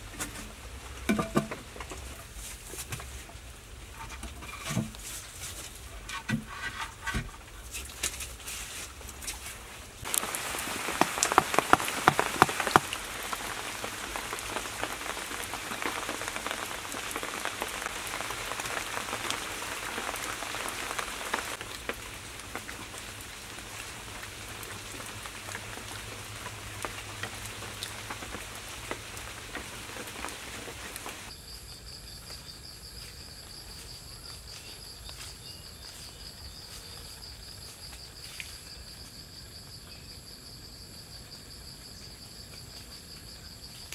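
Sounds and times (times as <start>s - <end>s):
dense crackling patter: 10.0s - 31.3s.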